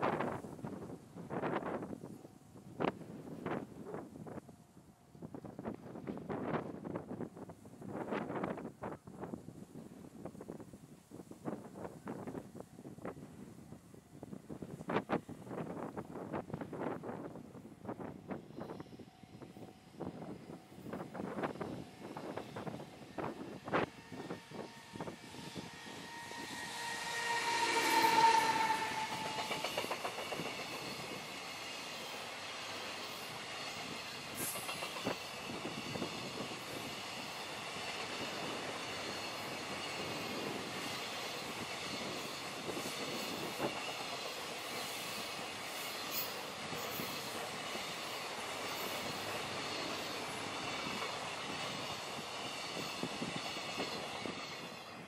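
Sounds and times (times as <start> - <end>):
electric locomotive whine: 0.0 - 55.0
train wagons rumbling and clattering: 20.1 - 32.1
wheels clicking over rail joints: 27.2 - 31.5.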